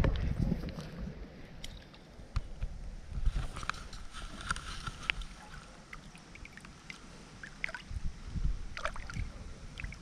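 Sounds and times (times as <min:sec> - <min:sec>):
water splashing and dripping: 0:05.0 - 0:08.0, 0:08.7 - 0:10.0.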